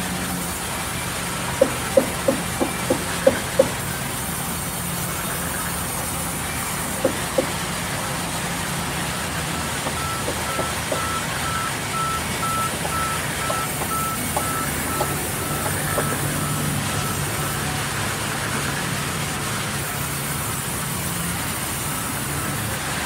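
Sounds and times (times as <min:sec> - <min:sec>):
knocks: 0:01.6 - 0:03.8, 0:07.0 - 0:07.6, 0:09.8 - 0:11.2, 0:12.8 - 0:16.2
high repeating beep: 0:09.9 - 0:17.2.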